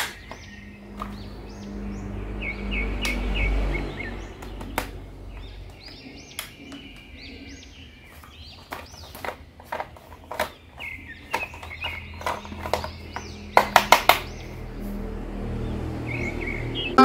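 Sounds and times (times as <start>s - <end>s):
plastic toy clicks and taps: 0.0s - 0.4s, 4.4s - 5.0s, 8.6s - 14.3s
low hum: 12.2s - 17.0s.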